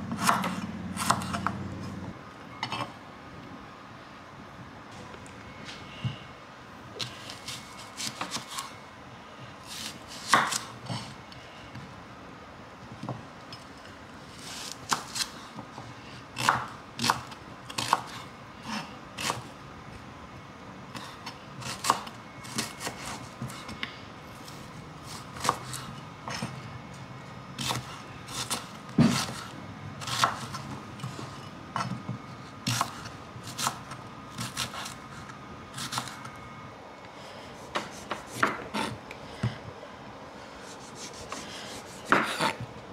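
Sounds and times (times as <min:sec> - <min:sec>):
knife chopping onion on wooden board: 0:00.1 - 0:01.6, 0:09.7 - 0:10.7, 0:16.4 - 0:18.2, 0:27.6 - 0:30.6, 0:32.6 - 0:35.0, 0:40.7 - 0:42.7.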